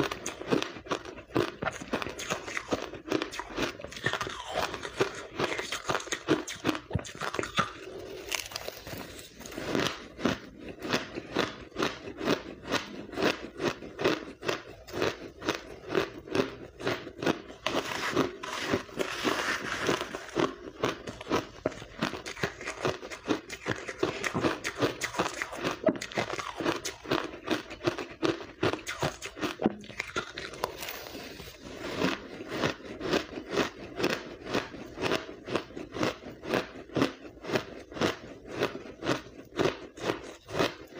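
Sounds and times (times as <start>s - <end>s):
chewing crushed ice: 0.0s - 40.9s.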